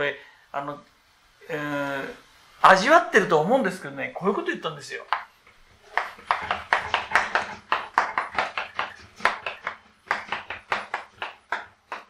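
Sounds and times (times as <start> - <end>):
chalk tapping and scratching on blackboard: 5.1 - 12.0.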